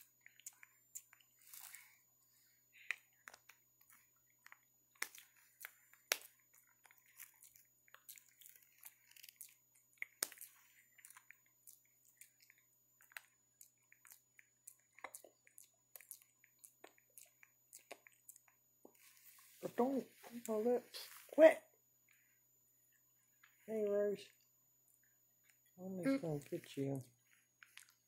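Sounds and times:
monkeys grooming clicks and smacks: 0:00.0 - 0:01.8, 0:02.8 - 0:19.1, 0:26.3 - 0:28.0.

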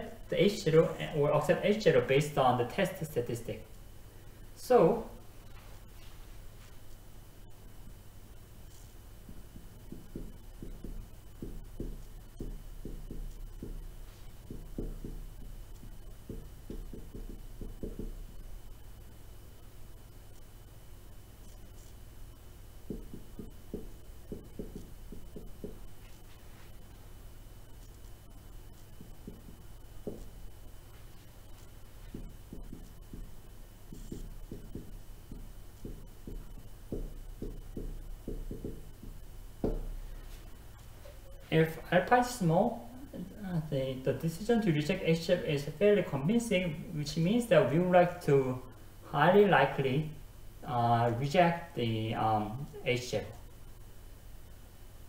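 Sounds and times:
steady low hum: 0:00.0 - 0:55.0
marker writing on whiteboard: 0:08.6 - 0:18.6, 0:21.4 - 0:22.0, 0:22.8 - 0:27.0, 0:27.7 - 0:41.3.

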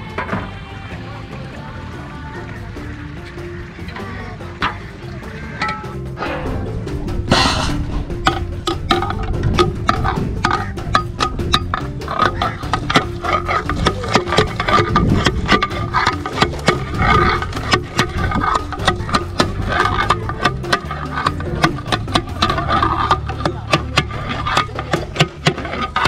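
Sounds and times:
sustained low tone: 0:06.2 - 0:11.7.

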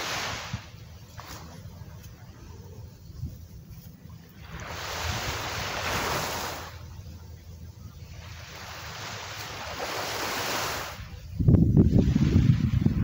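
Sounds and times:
waves washing up a sandy beach: 0:00.0 - 0:02.8, 0:04.3 - 0:07.0, 0:08.0 - 0:11.3, 0:11.9 - 0:13.0.

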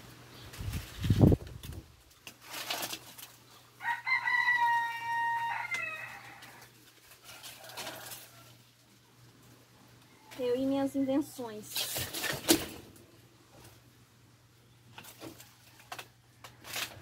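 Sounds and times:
leaves and branches rustling: 0:00.0 - 0:14.0
rooster crowing: 0:03.8 - 0:08.6.

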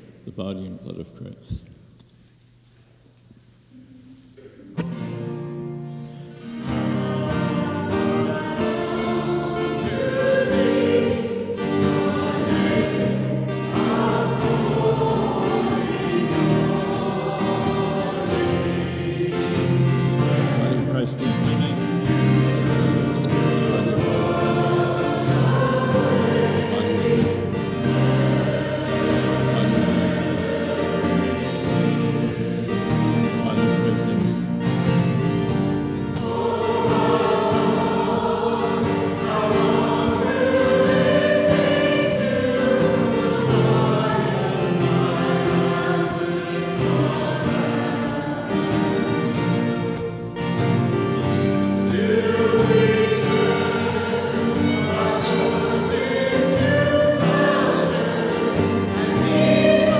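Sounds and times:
church choir singing a hymn: 0:04.8 - 0:59.9.

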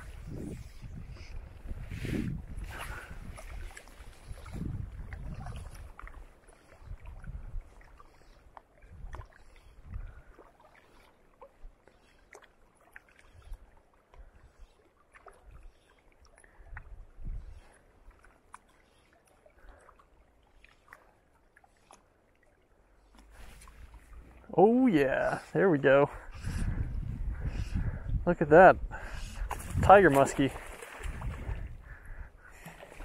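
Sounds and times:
small waves lapping on rocks: 0:29.4 - 0:32.0.

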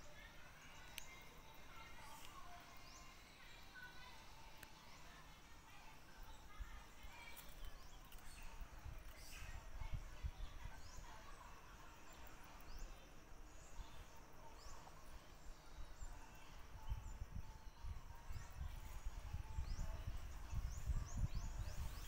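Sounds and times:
low rumbling on microphone: 0:16.7 - 0:22.0.

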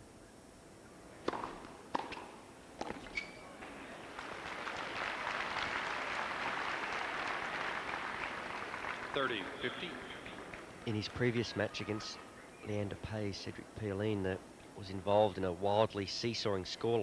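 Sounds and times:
tennis ball hits: 0:01.2 - 0:03.2
crowd applauding and cheering: 0:04.0 - 0:10.8.

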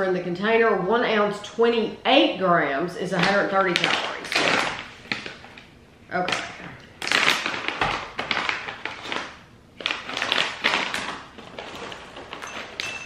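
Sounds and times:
snack bag crinkling: 0:03.2 - 0:05.7, 0:06.3 - 0:13.0.

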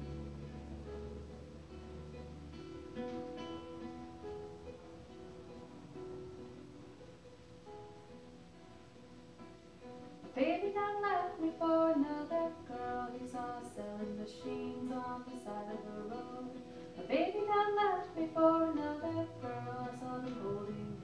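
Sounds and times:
acoustic guitar: 0:00.0 - 0:21.0
ukulele: 0:00.0 - 0:21.0
woman singing: 0:10.3 - 0:21.0.

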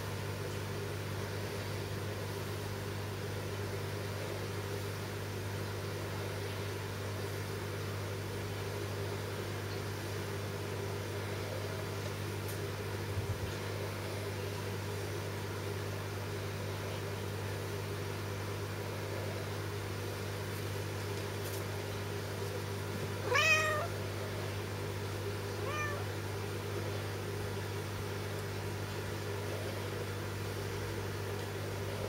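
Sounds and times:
kitten mewing: 0:23.2 - 0:24.0, 0:25.6 - 0:26.2.

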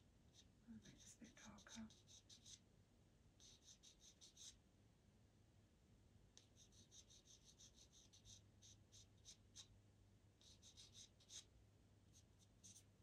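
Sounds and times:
pencil scratching across paper: 0:00.3 - 0:02.6, 0:03.4 - 0:04.6, 0:06.4 - 0:09.7, 0:10.4 - 0:11.5, 0:12.1 - 0:12.9.

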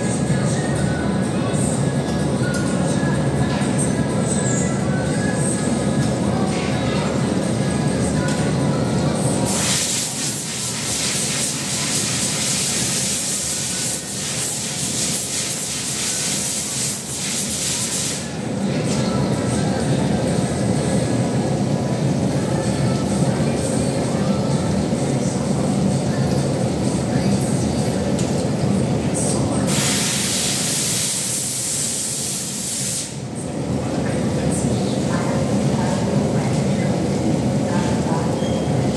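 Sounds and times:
glassworks machinery hissing: 0:00.0 - 0:33.5
loud steady hiss: 0:09.4 - 0:18.4, 0:29.7 - 0:33.3.

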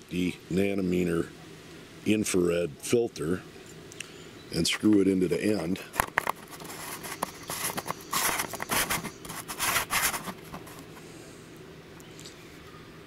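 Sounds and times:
fingers rubbing on microphone: 0:06.0 - 0:10.9.

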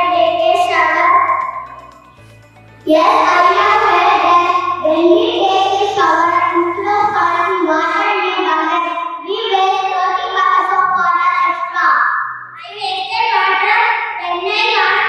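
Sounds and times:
children singing together: 0:02.9 - 0:08.7.

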